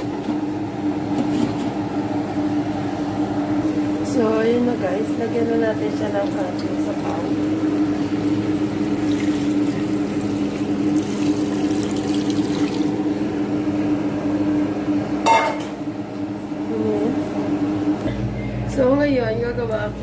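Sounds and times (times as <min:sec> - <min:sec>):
steady low hum: 0:00.0 - 0:20.0
broth bubbling in a pot: 0:06.1 - 0:13.2
short metallic clink: 0:15.3 - 0:15.7.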